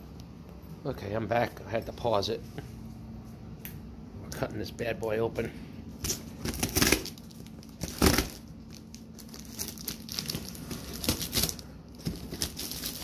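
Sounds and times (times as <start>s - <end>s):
faint low pump hum: 0.0s - 13.0s
box cutter slicing plastic wrap: 6.1s - 7.2s, 7.8s - 8.4s.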